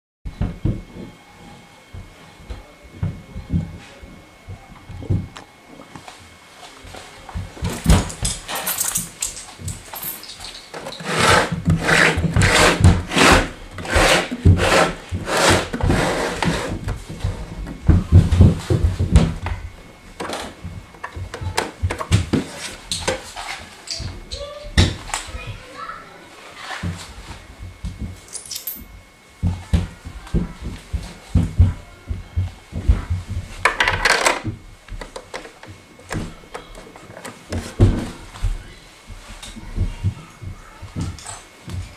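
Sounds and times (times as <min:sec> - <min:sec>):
plastic scraping on wood: 0:10.7 - 0:17.0
coin rattling through coin mechanism: 0:28.3 - 0:28.9.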